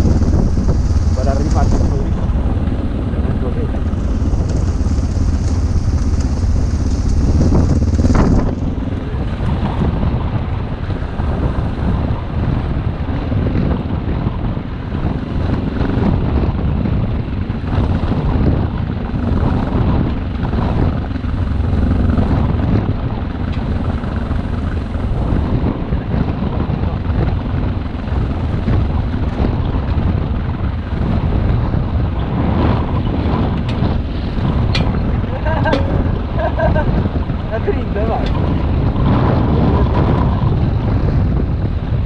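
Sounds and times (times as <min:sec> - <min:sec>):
motorcycle engine running: 0:00.0 - 0:42.0
wind buffeting microphone: 0:00.0 - 0:42.0.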